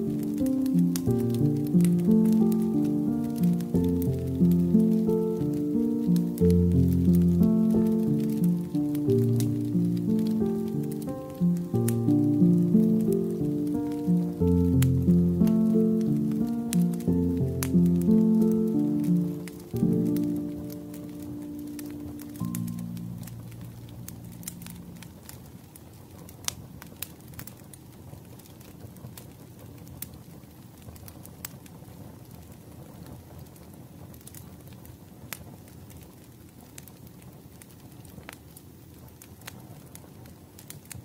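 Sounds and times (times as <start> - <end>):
background music: 0.0 - 25.1
wood fire crackling: 0.0 - 41.0.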